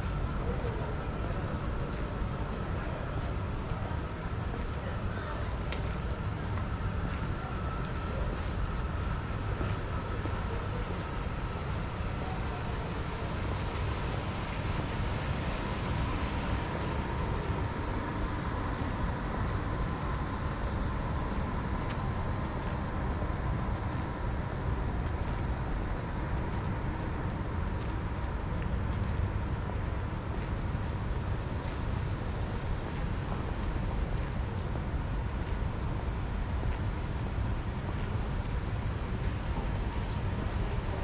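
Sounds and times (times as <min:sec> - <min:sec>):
faint high hum: 0:00.0 - 0:41.0
low traffic rumble: 0:00.0 - 0:41.0
hiss of passing car: 0:07.2 - 0:25.0.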